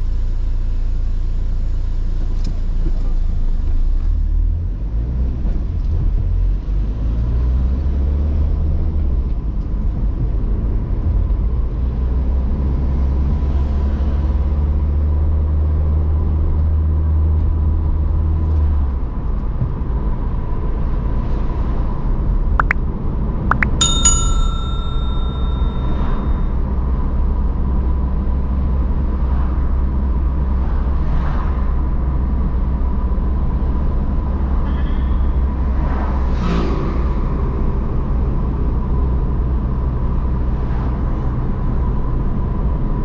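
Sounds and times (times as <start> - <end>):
bright bell ding: 23.5 - 26.4.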